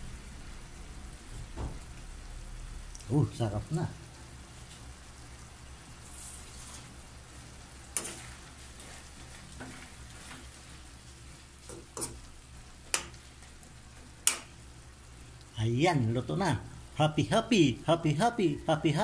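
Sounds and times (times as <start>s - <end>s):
low sizzle: 0.0s - 19.0s
spoon clicking on pan: 14.2s - 14.5s.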